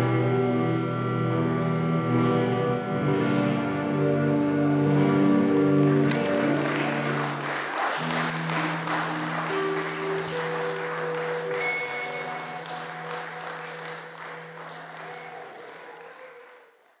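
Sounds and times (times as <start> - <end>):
music with long held notes: 0.0 - 15.8
audience applause: 5.2 - 17.0.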